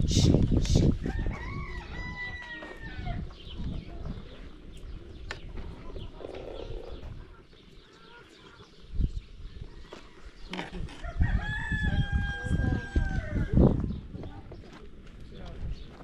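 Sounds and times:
poultry calling: 5.6s - 8.9s.

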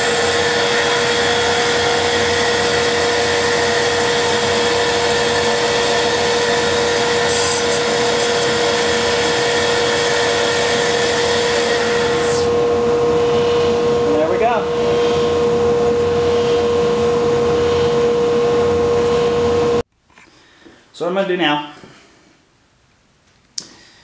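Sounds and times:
lathe whining and hissing: 0.0s - 19.8s
steady hum: 0.0s - 19.9s.

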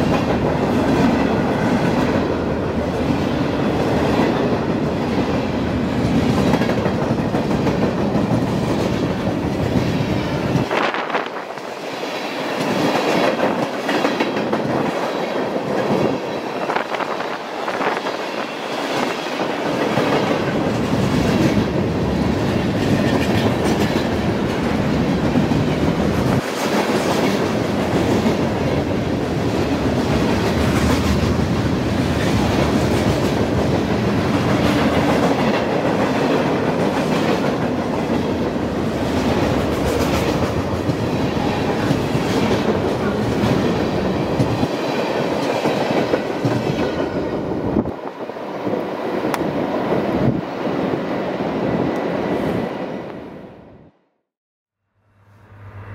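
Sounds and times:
train wheels clacking over rails: 0.0s - 11.7s, 17.8s - 47.3s.

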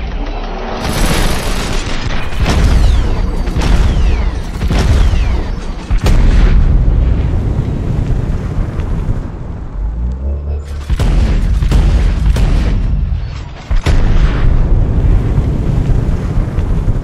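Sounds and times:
slowed gunfire booms: 0.9s - 10.0s, 10.8s - 17.0s.

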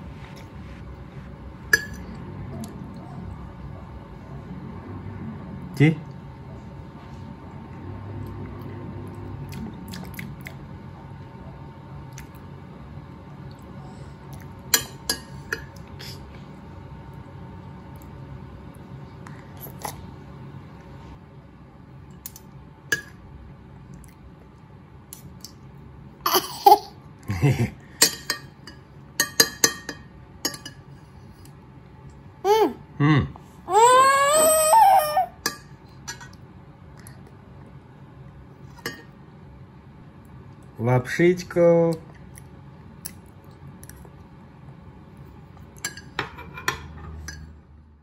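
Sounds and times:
low room hum: 0.0s - 48.0s
babbling: 32.4s - 32.8s, 33.7s - 35.4s
low vocal sound: 33.0s - 33.5s
cutlery and dishes clinking: 45.8s - 47.6s.

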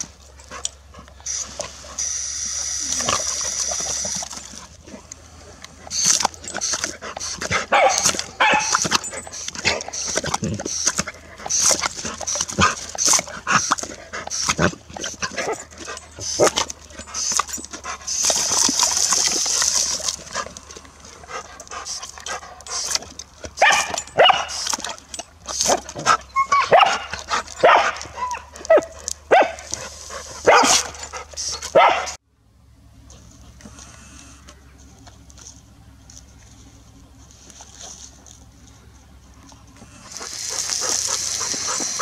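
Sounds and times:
dog barking and yipping: 5.9s - 18.8s, 23.5s - 32.2s
water jet hissing: 40.0s - 42.0s.

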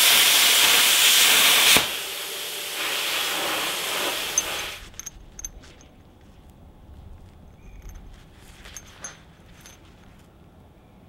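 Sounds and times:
steel pieces clicking and scraping: 4.3s - 6.0s, 7.5s - 10.2s.

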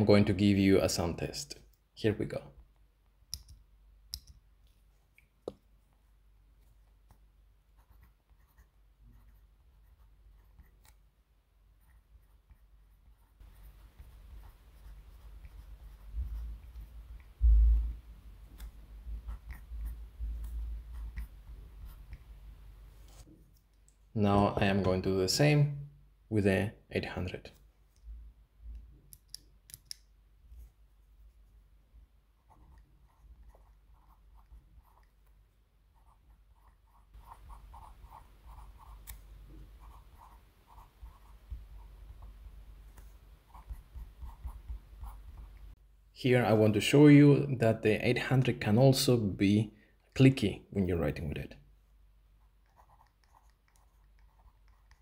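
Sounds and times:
pencil scratching on paper: 7.1s - 11.0s, 11.7s - 17.3s, 18.5s - 22.2s, 32.4s - 35.3s, 35.9s - 45.7s, 52.4s - 55.0s
dull low thump: 17.4s - 18.0s.

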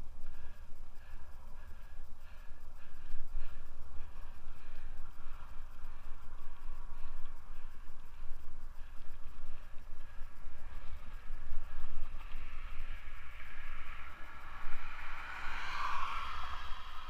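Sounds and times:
bike tyres hissing on asphalt: 10.2s - 17.0s.

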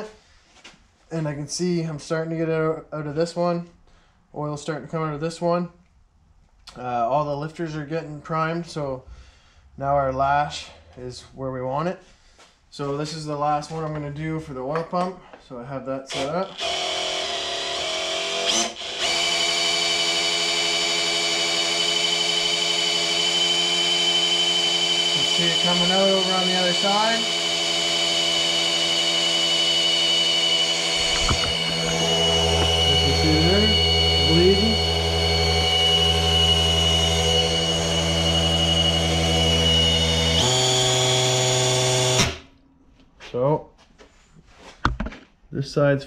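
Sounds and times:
power drill motor whine: 16.1s - 42.5s.

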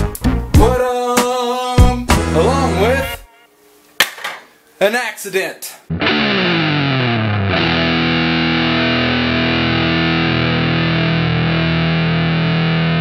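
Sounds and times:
distorted electric guitar chord: 5.9s - 13.0s.

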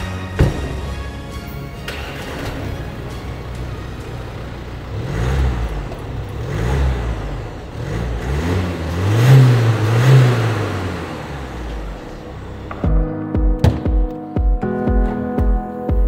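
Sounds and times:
diesel engine idling and revving: 0.0s - 12.8s.

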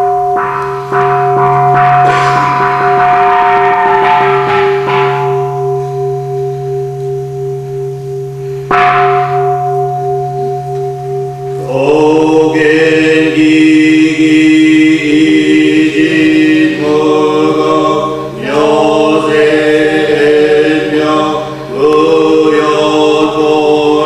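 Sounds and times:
bell ringing: 0.0s - 13.8s, 15.4s - 24.0s
voices chanting: 11.6s - 24.0s.

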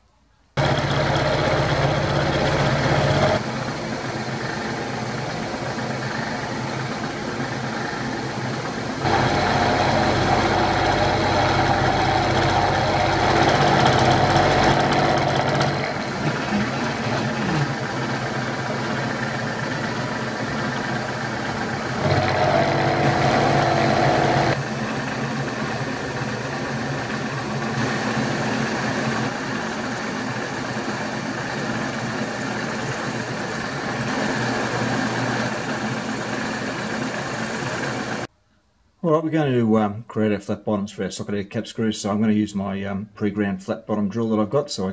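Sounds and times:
end mill cutting metal: 0.6s - 38.3s
drill cutting holes in metal: 9.0s - 24.6s.

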